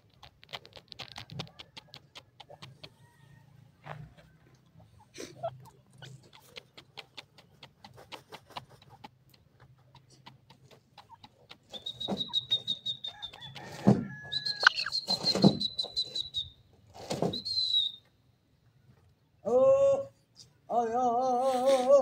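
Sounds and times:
thin high whistling tone: 14.3s - 16.5s
bird harsh call notes: 14.4s - 16.2s.

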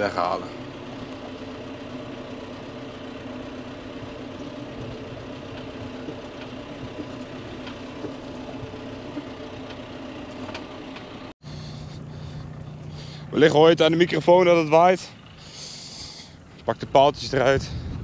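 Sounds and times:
tractor diesel engine running: 0.0s - 18.0s.

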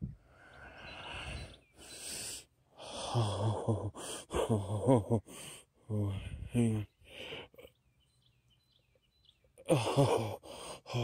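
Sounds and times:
man breathing hard and gasping: 0.2s - 7.7s, 9.7s - 11.0s
man's wordless voice sounds: 3.0s - 7.7s, 9.6s - 11.0s.

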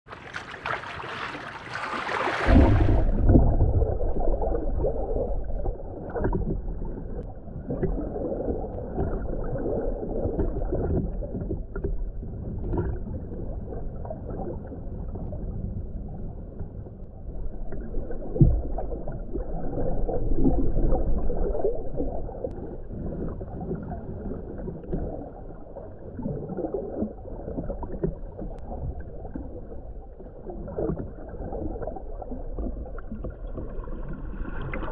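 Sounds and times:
lake water surface noise: 0.0s - 11.8s
gurgling bubbles: 0.1s - 16.3s, 17.2s - 34.9s
muffled underwater rumble: 2.3s - 34.9s.

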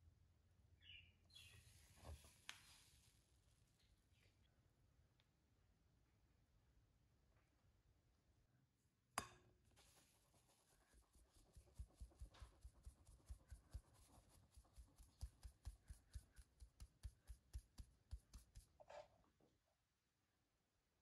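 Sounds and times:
flour rustling through mesh: 1.5s - 3.7s, 9.8s - 17.4s.

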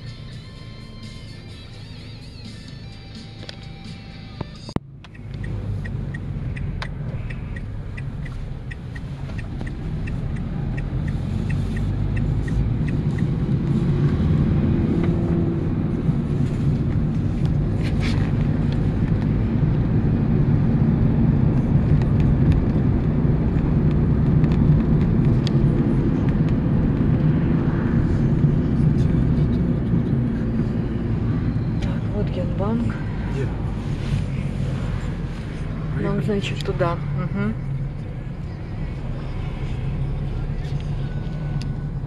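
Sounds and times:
vehicle engine and road rumble: 0.0s - 42.0s
light ticking: 5.0s - 13.3s.

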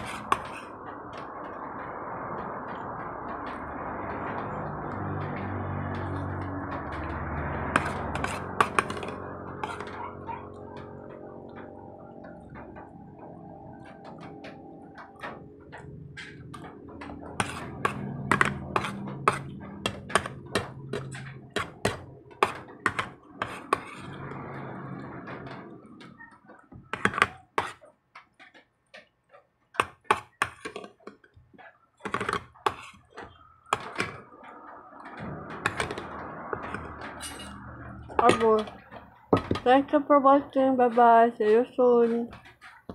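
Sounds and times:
spoon scraping plastic bowl: 0.0s - 0.8s, 7.0s - 10.6s, 16.2s - 24.2s, 26.7s - 27.8s, 29.8s - 34.3s, 35.6s - 39.9s.

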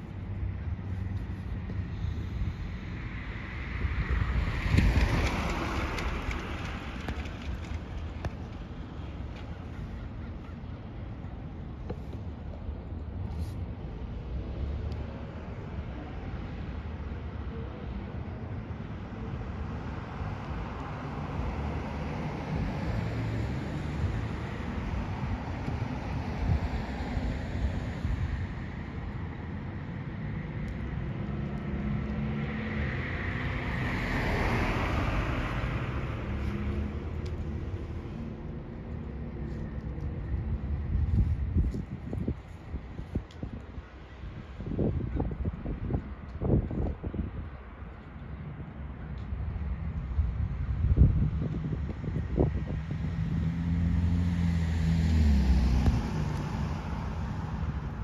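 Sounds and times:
car passing: 2.0s - 9.1s, 20.2s - 40.6s, 52.2s - 58.0s.

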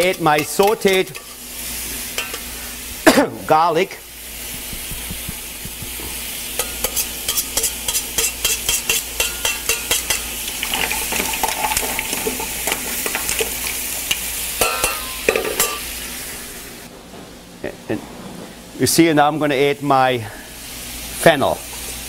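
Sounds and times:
seafood sizzling in oil: 0.0s - 3.0s, 3.8s - 16.9s, 20.5s - 22.0s
metal utensil clicking on pan: 2.2s - 2.5s, 6.6s - 10.3s.

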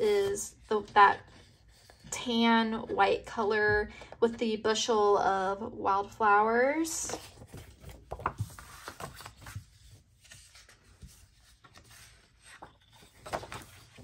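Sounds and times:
paper rustling and sliding: 7.1s - 14.0s.

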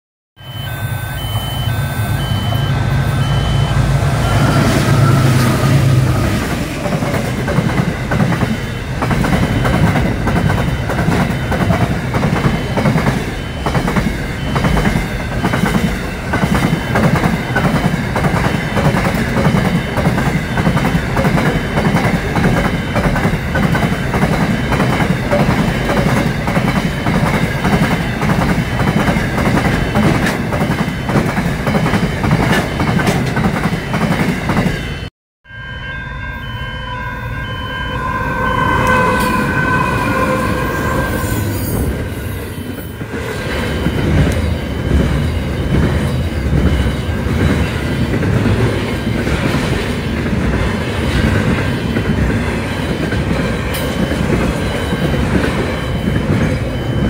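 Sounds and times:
diesel locomotives droning: 0.4s - 57.0s
train wheels clickety-clack: 4.2s - 35.0s, 43.0s - 57.0s.

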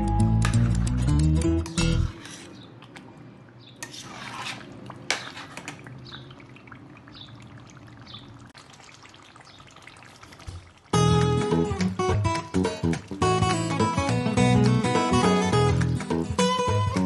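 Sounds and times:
spoon scraping pot: 1.9s - 2.6s, 3.8s - 5.9s.

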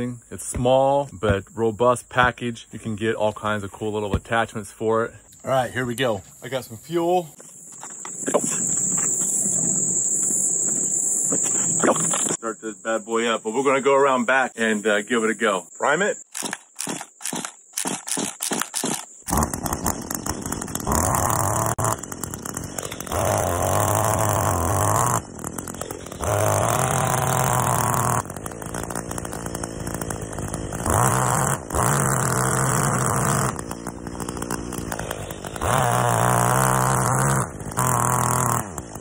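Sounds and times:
tines churning compost: 16.0s - 39.0s
tiller engine revving: 16.3s - 39.0s.

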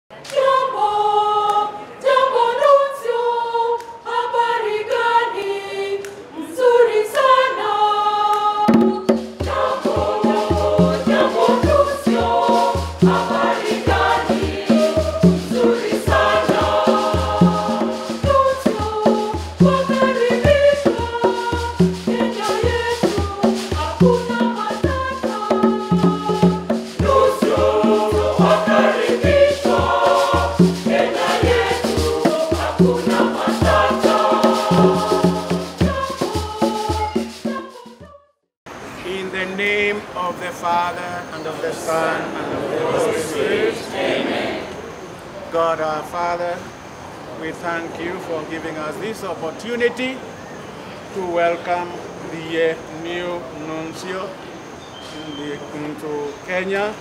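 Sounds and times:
choir singing: 0.1s - 38.2s, 41.4s - 45.0s
percussion with steady beat: 8.4s - 38.2s.

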